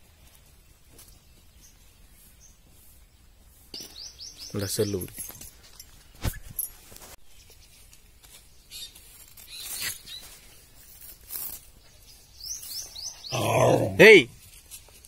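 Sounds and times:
bird chirping: 1.0s - 6.5s, 7.2s - 10.6s, 11.7s - 14.0s
net rustling: 5.5s - 11.9s.

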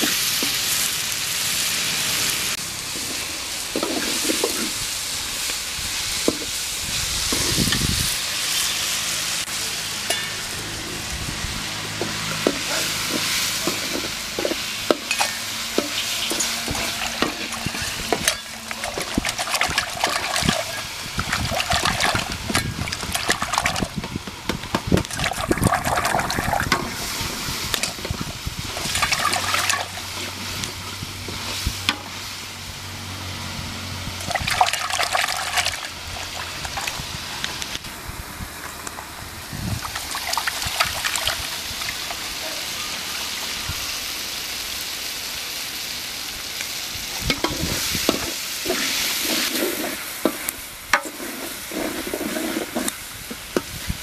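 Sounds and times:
water splashing in steel pot: 12.4s - 24.2s, 24.8s - 30.4s, 34.2s - 37.8s, 39.8s - 42.3s.

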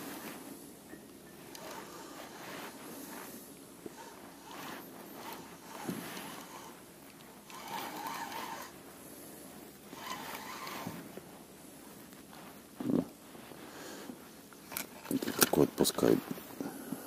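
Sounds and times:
spinning reel whirring: 1.3s - 8.9s, 9.9s - 11.1s.

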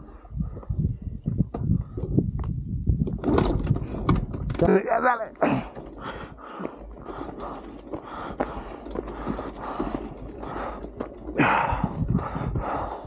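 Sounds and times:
people breathing hard: 5.4s - 13.0s.

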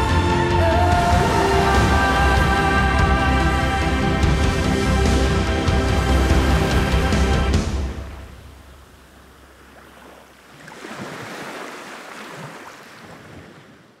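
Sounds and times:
background music: 0.0s - 9.1s
waves washing onto stony shore: 1.0s - 14.0s.

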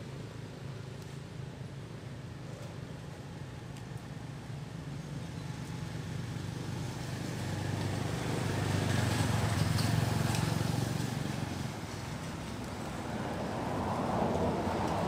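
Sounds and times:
vehicle engine droning: 4.9s - 15.0s.

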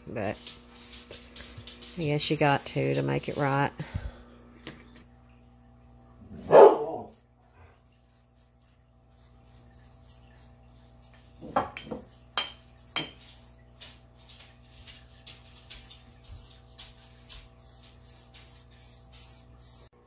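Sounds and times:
paintbrush swishing on wood: 0.0s - 3.8s, 8.0s - 11.4s, 12.1s - 20.0s
brush clinking on glass jar: 11.5s - 13.5s.

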